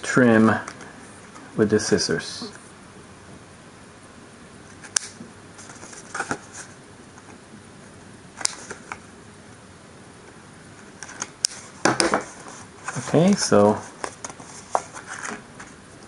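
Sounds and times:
scissors snipping tape: 0:04.9 - 0:05.2.

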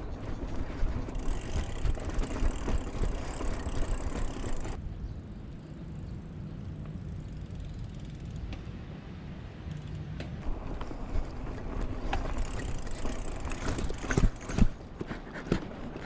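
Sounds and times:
bike rattling over bumps: 0:00.0 - 0:04.8, 0:10.4 - 0:16.0
bike tyres rolling on dirt: 0:00.0 - 0:04.8, 0:10.4 - 0:16.0
freewheel ticking: 0:00.4 - 0:04.8.

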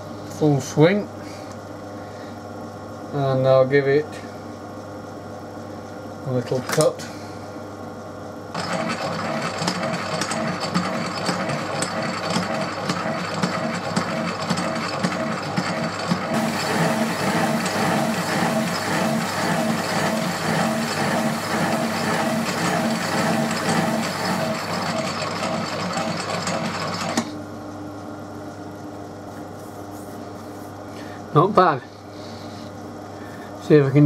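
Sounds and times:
lathe running rhythmically: 0:08.6 - 0:27.2.

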